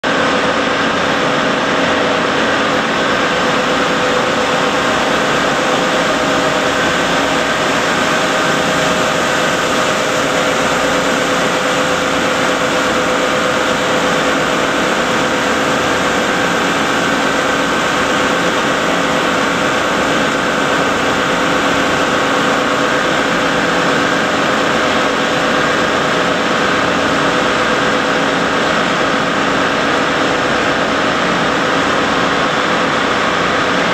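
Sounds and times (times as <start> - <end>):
machinery hum: 0.0 - 33.9
steady tones: 1.2 - 23.8.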